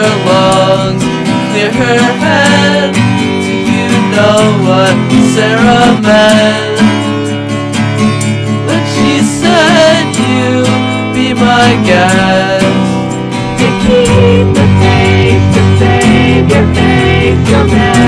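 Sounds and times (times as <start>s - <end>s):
strummed acoustic guitar: 0.0s - 18.0s
gliding melody line: 11.0s - 18.0s.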